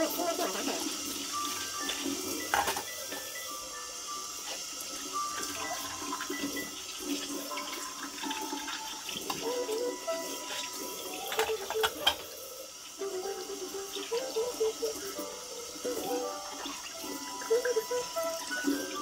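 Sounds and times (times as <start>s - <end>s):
dishware clinking and knocking: 2.5s - 2.9s, 11.2s - 12.3s
tap water splashing into sink: 5.4s - 12.3s.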